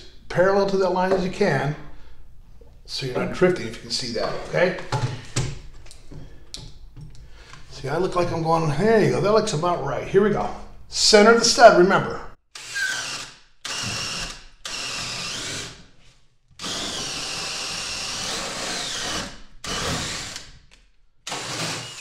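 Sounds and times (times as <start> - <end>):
cordless drill boring through wood: 12.5 - 15.8, 16.6 - 20.5, 21.3 - 22.0.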